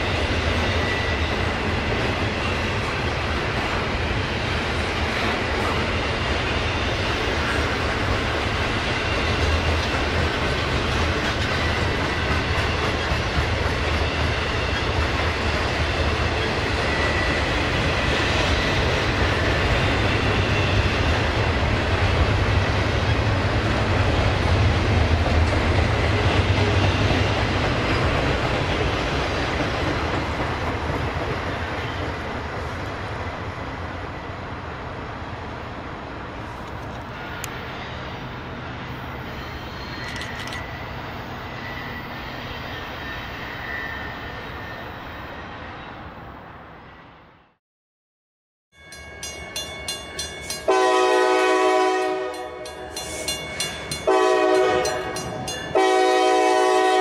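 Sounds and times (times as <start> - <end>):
train wheels rumbling on rails: 0.0 - 45.3, 48.9 - 57.0.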